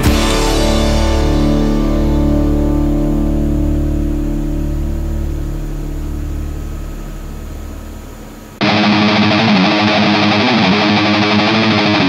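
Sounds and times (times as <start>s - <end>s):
low held chord: 0.0s - 9.2s
distorted electric guitar rock music: 0.0s - 12.0s.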